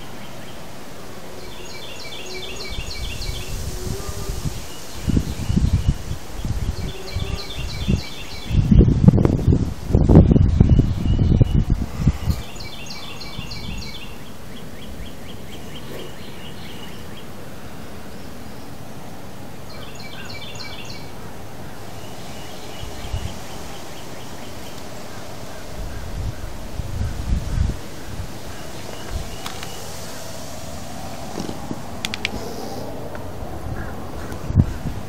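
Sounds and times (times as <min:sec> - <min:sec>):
songbird chirping and trilling: 0:00.0 - 0:08.9, 0:09.9 - 0:18.8, 0:19.6 - 0:30.4
steady outdoor hiss: 0:00.0 - 0:35.0
low microphone rumbling: 0:02.7 - 0:14.2, 0:30.8 - 0:35.0.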